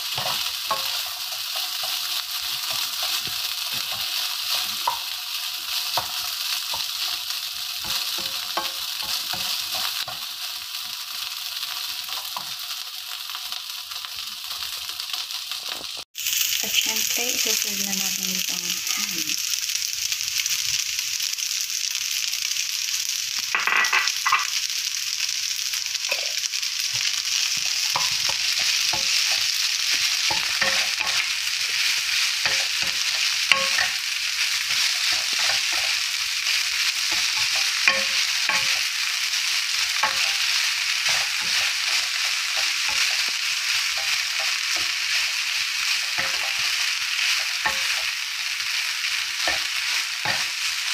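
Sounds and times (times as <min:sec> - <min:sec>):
food sizzling in a frying pan: 0:00.0 - 0:50.9.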